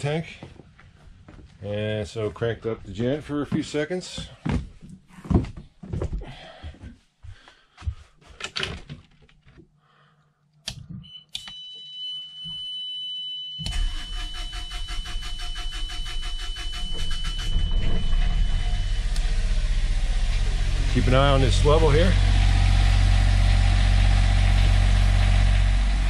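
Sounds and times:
footsteps: 0:00.2 - 0:08.4
steady high tone: 0:11.7 - 0:25.1
generator engine running: 0:13.7 - 0:26.0.

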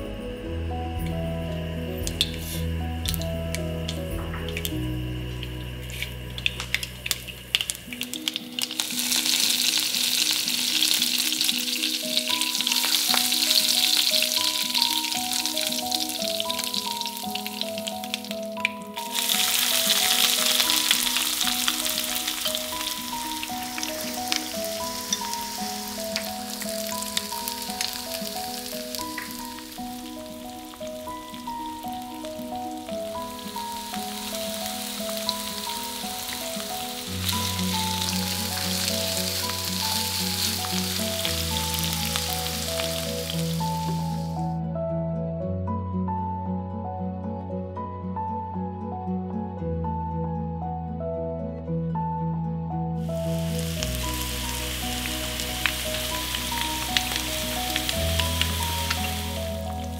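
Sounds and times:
light background melody: 0:00.0 - 0:59.9
soft background music: 0:00.0 - 0:59.9
seeds sizzling in hot oil: 0:01.8 - 0:44.4, 0:53.0 - 0:59.9.

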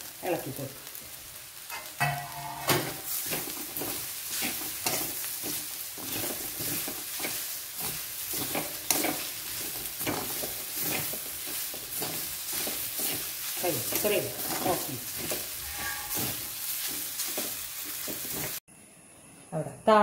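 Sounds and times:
light sizzle from hot pan: 0:00.0 - 0:18.6
spoon scraping metal pan: 0:01.7 - 0:03.5, 0:14.6 - 0:16.5.

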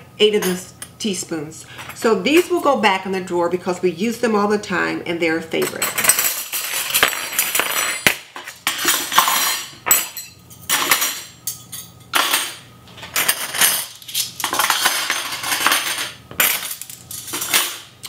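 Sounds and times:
flatware clinking and clattering: 0:05.6 - 0:17.9.

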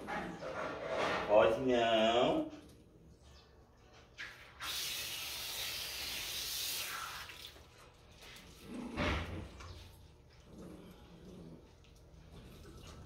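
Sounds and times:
hose spraying water: 0:04.4 - 0:07.7.

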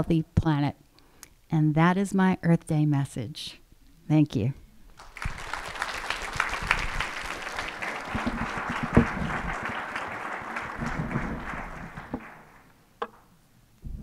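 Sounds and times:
audience applauding: 0:05.0 - 0:12.8.

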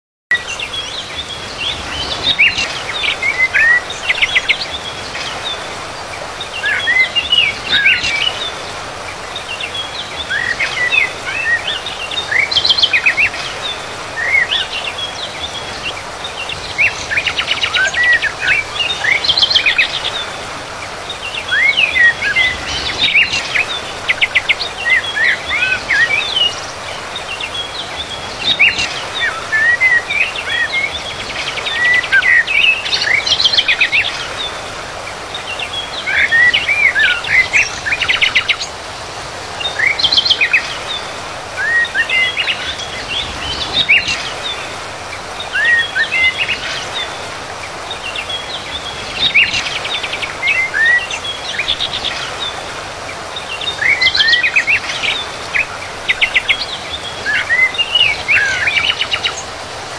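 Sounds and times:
songbirds chirping and trilling: 0:00.3 - 0:59.9
steady background hiss: 0:00.4 - 0:59.9.

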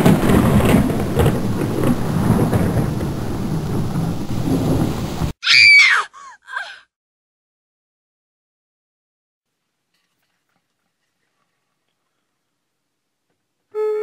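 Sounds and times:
heavy rain: 0:00.0 - 0:05.4
rolling thunder: 0:00.0 - 0:05.4
high rising and falling cry: 0:05.4 - 0:06.8.

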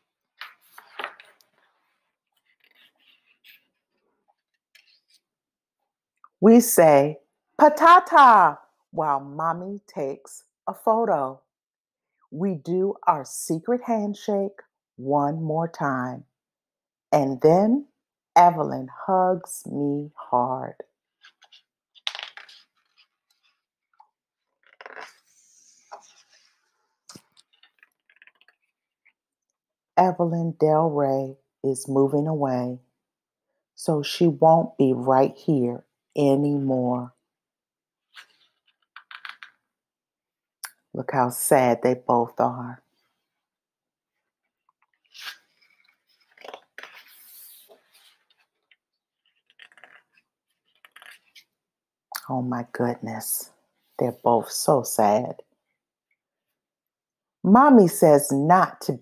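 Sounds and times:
book pages rustling: 0:00.2 - 0:05.3, 0:21.2 - 0:29.2, 0:38.1 - 0:39.4, 0:44.3 - 0:51.5.

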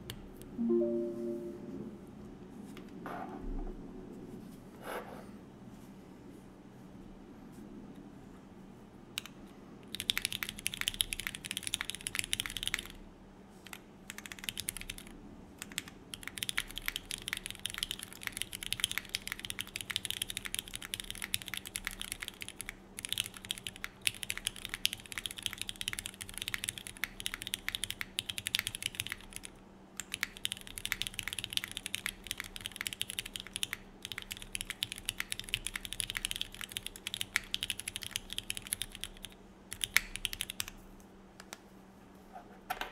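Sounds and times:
fast mechanical keyboard typing: 0:09.2 - 0:13.0, 0:13.7 - 0:40.8.

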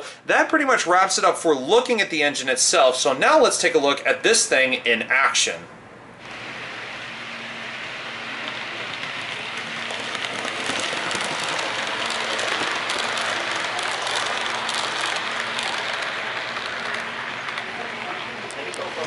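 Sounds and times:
model train wheels on rail: 0:06.2 - 0:19.0
clicks over the track: 0:08.4 - 0:19.0.

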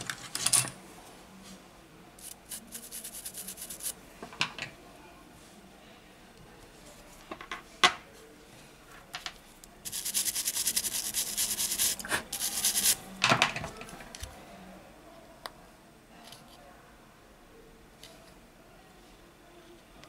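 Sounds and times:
pad scrubbing plastic: 0:09.9 - 0:13.0.

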